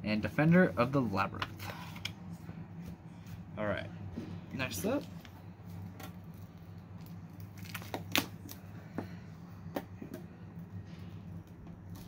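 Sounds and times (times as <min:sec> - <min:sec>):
low electrical hum: 0:00.0 - 0:12.0
foil pack crinkling and clicking: 0:06.0 - 0:08.6.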